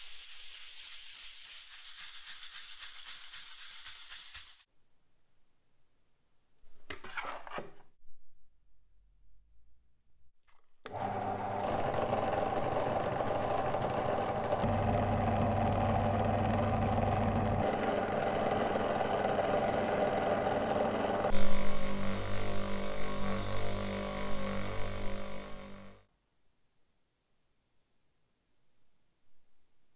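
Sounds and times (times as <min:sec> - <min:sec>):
electric power tool humming: 0:10.9 - 0:26.0.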